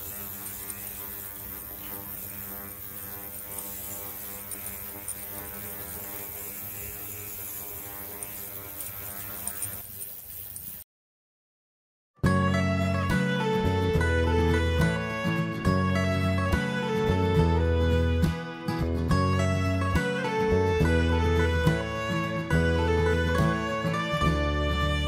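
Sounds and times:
electrical buzz with mains hum: 0.0 - 10.8.

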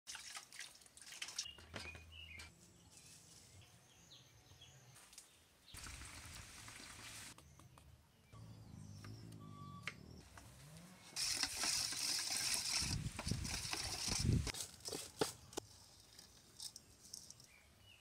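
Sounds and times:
water splashing: 0.1 - 1.5
bird chirps: 7.4 - 10.3.

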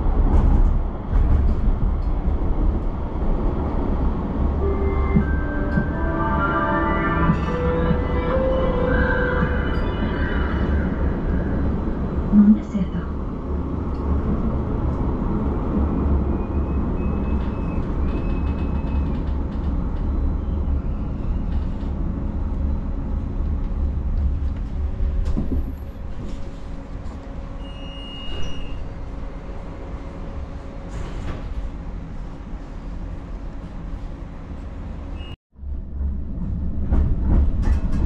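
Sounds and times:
traffic rumble: 10.4 - 27.6.

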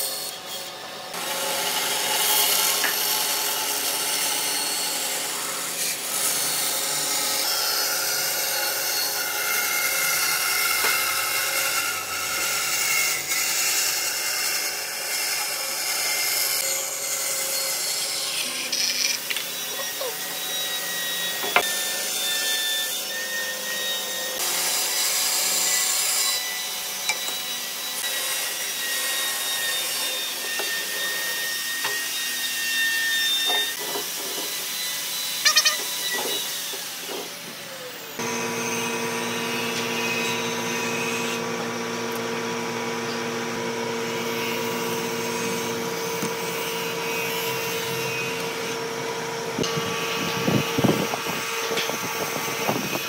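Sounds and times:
bandsaw cutting wood: 0.0 - 53.0
steady motor hum: 37.8 - 53.0.

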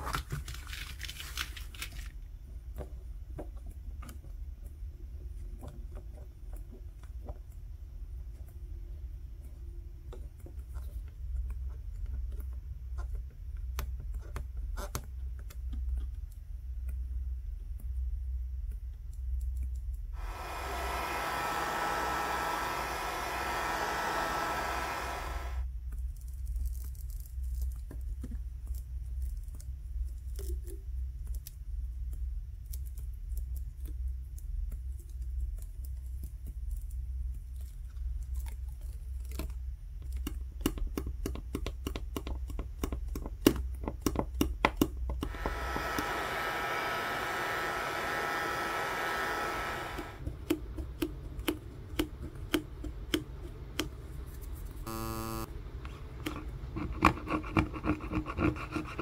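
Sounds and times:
heat gun blowing: 20.2 - 25.6, 45.3 - 50.2, 54.9 - 55.5.

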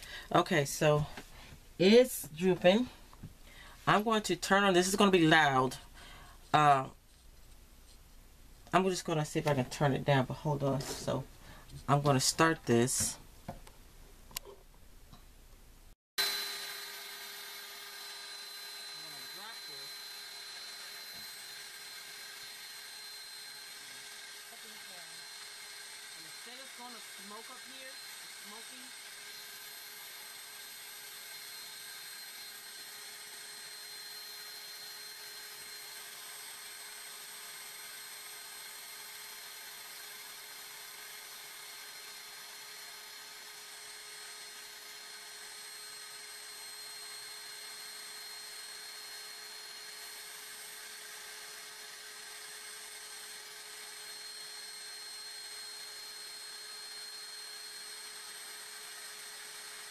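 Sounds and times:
vacuum cleaner whirring: 16.2 - 59.9.

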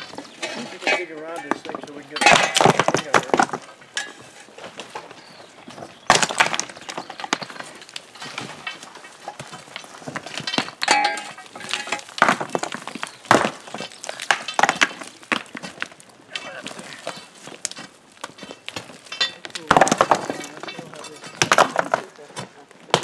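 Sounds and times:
metal tools scraping stone: 0.0 - 4.6, 18.3 - 22.0
loose rocks knocking together: 0.0 - 23.0.

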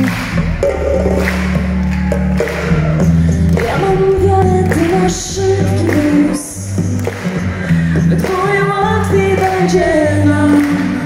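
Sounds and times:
live pop-rock band playing: 0.0 - 11.0
person singing: 2.7 - 6.8, 7.9 - 11.0.

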